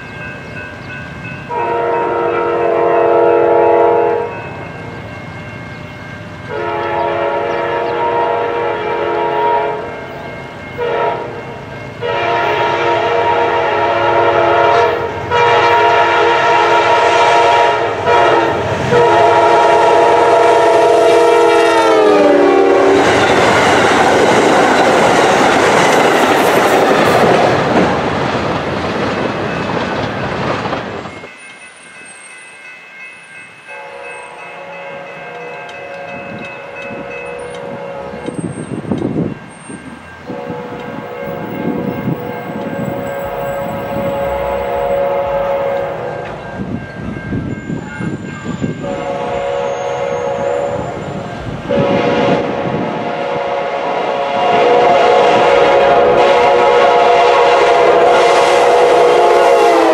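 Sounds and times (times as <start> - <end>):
passing train rush and wheel clatter: 0.0 - 59.9
locomotive air horn blasts: 1.5 - 4.4, 6.5 - 9.9, 10.8 - 11.4, 12.0 - 23.6, 33.7 - 38.5, 40.3 - 46.4, 48.8 - 59.9.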